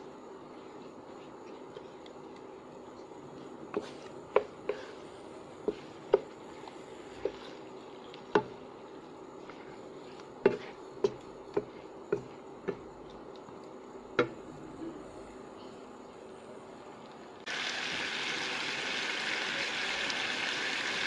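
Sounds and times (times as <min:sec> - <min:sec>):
faint steady hiss: 0:00.0 - 0:21.0
wooden spatula knocking on a wok: 0:10.4 - 0:12.9, 0:14.2 - 0:14.4.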